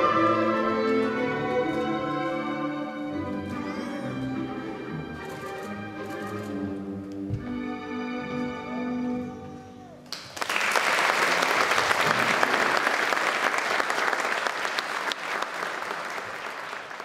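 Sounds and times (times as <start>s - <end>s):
ballet music held notes: 0.0s - 9.8s
audience applauding: 10.0s - 17.0s.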